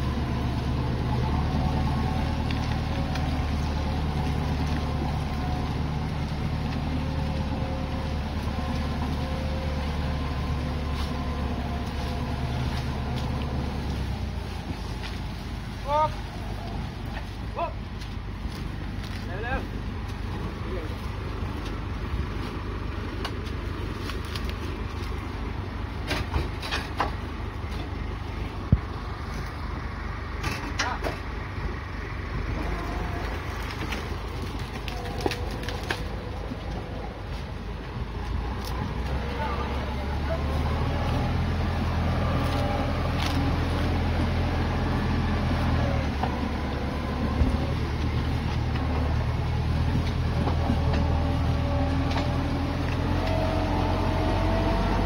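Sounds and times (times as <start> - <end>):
tractor diesel engine running: 0.0 - 55.0
sharp knocks and rustles: 26.0 - 28.0.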